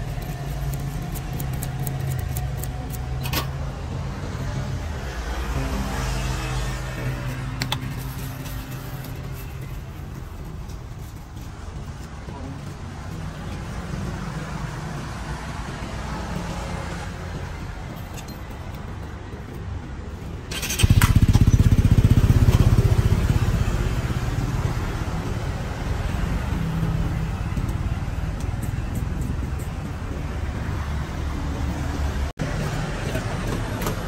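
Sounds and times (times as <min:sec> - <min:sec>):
street traffic: 0:00.0 - 0:34.0
motorcycle engine running: 0:20.5 - 0:28.3.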